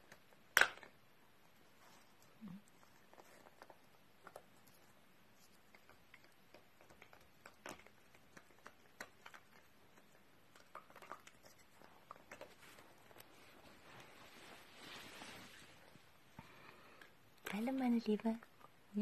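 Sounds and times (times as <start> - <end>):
dog gnawing chew stick: 1.8 - 13.7.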